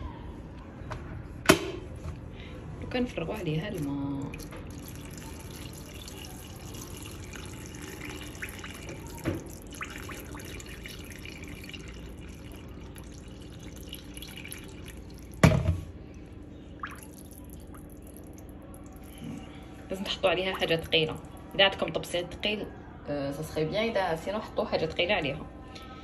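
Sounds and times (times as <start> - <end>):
hot water pouring from kettle: 4.4 - 15.4.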